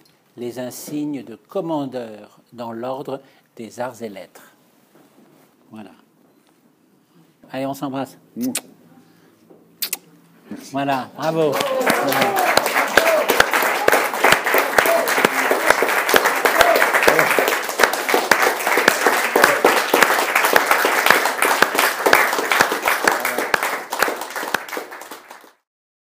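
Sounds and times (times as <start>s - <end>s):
small group applauding: 11.2s - 25.7s.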